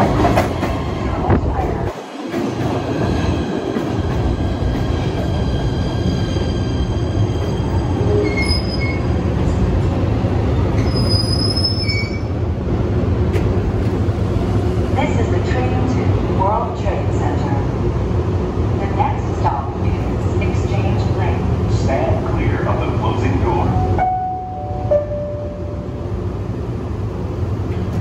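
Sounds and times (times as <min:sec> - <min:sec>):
train wheels and motors rumbling: 0:00.0 - 0:24.2, 0:25.6 - 0:28.0
high wheel squeals: 0:07.8 - 0:09.1, 0:10.8 - 0:12.3.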